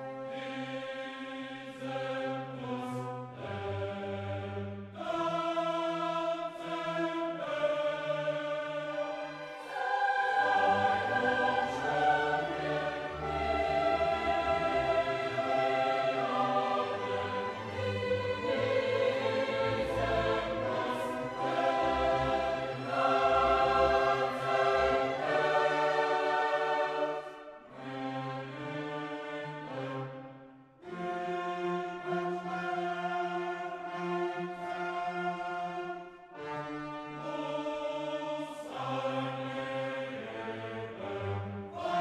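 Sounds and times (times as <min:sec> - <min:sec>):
choir singing held chords: 0:00.0 - 0:30.2, 0:30.8 - 0:42.0
orchestral backing: 0:08.7 - 0:30.2.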